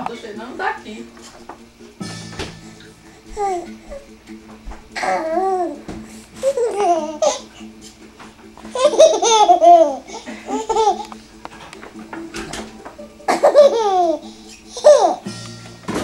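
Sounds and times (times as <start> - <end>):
baby laughing: 5.0 - 5.8, 6.4 - 7.6, 8.6 - 11.1, 13.2 - 15.3.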